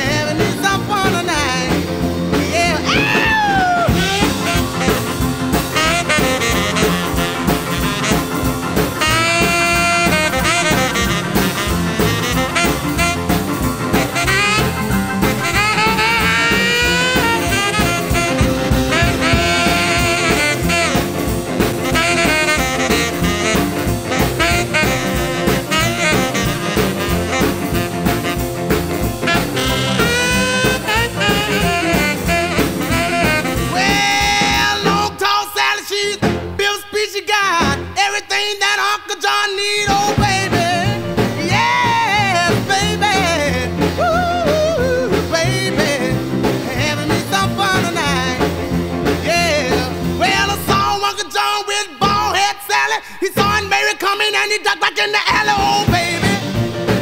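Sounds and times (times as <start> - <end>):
swing jazz tune with brass horns: 0.0 - 52.5, 53.3 - 57.0.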